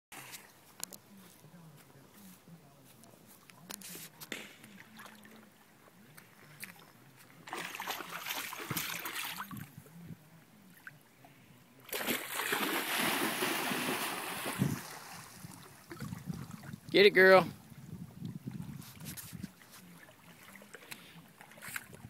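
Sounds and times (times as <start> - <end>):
dog splashing through water: 7.4 - 9.6, 11.9 - 16.5.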